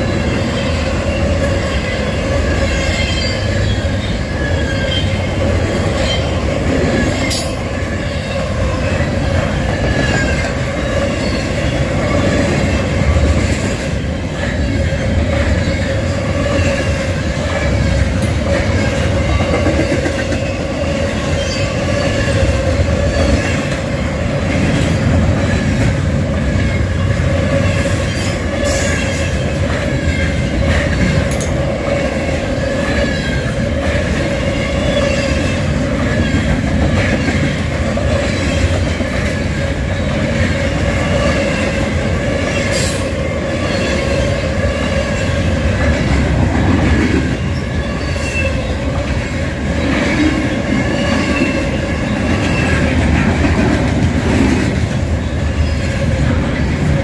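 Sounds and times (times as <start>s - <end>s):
freight train cars rolling past: 0.0s - 57.0s
whining tone from train wheels: 0.0s - 57.0s
sharp clicks of train wheels: 5.4s - 43.2s.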